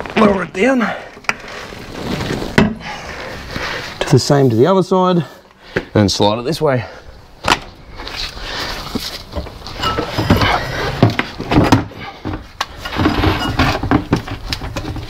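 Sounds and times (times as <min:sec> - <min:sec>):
metal scraping: 0:09.6 - 0:11.2
metal clunks and knocks: 0:09.8 - 0:15.0.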